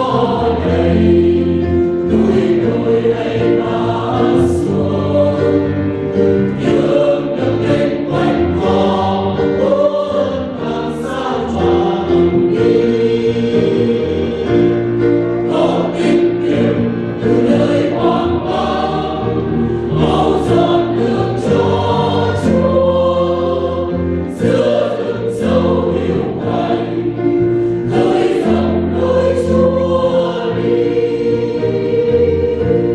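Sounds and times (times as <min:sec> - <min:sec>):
choir singing a hymn: 0:00.0 - 0:32.9.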